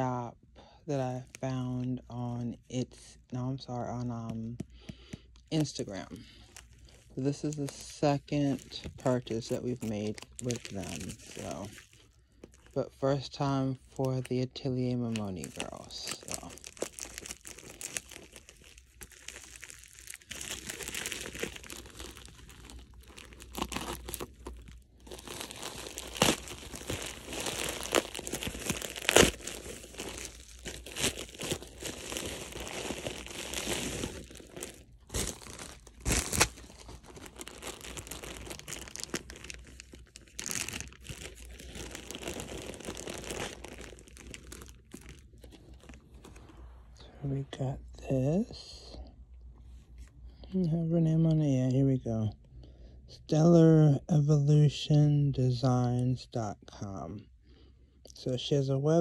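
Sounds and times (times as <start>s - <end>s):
plastic packaging crinkling: 3.7s - 46.7s
sharp plastic crackles: 4.0s - 12.8s, 15.0s - 46.4s.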